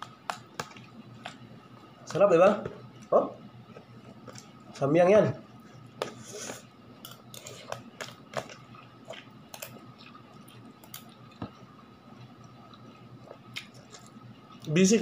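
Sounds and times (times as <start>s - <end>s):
slurping and chewing noodles: 7.4s - 14.7s.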